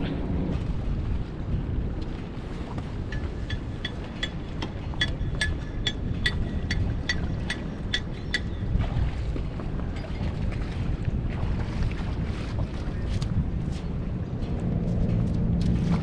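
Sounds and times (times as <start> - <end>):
water lapping at shore: 0.0 - 16.0
wind on microphone: 0.0 - 16.0.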